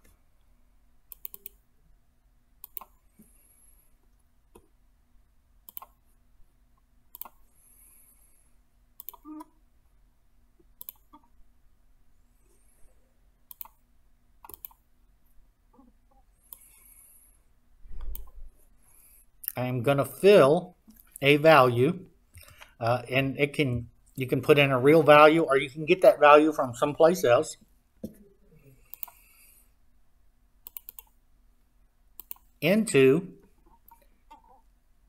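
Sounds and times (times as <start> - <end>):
low steady hum: 0.0 - 35.0
computer mouse clicking: 1.1 - 1.6, 2.6 - 3.3, 5.7 - 6.0, 7.1 - 7.4, 9.0 - 9.4, 10.8 - 11.2, 13.5 - 13.8, 14.4 - 14.8, 16.5 - 16.7, 18.0 - 18.4, 28.9 - 29.2, 30.6 - 31.2, 32.2 - 32.5.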